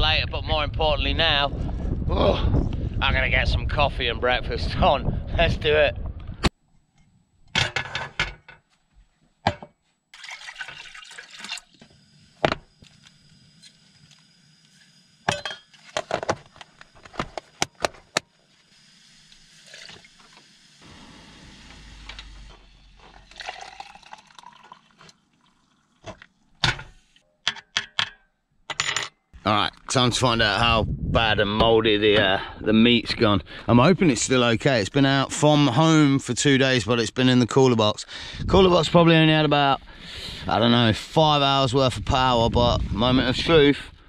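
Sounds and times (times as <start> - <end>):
water sound from pot: 10.1 - 12.8, 18.7 - 27.2.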